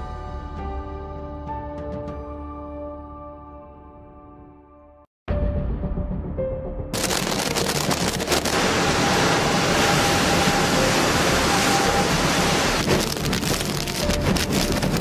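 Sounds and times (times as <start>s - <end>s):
driving rain: 7.0s - 15.0s.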